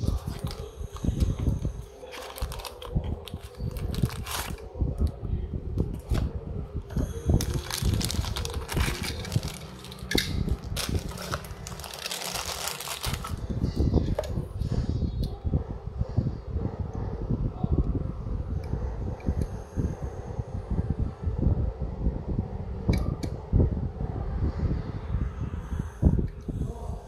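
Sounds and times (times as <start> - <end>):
plastic bag crinkling: 0.0 - 4.6, 7.4 - 13.5.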